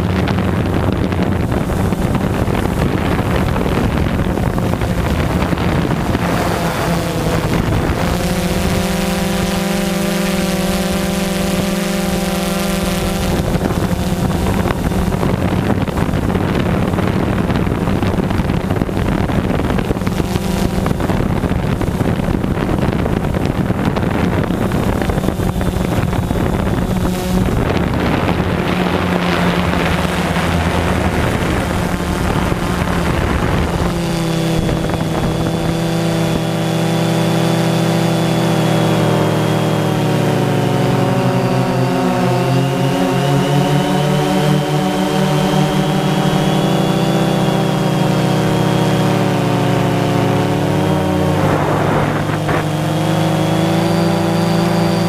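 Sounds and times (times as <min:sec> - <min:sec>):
drone propellers humming: 0:00.0 - 0:55.0
wind noise on microphone: 0:00.0 - 0:55.0.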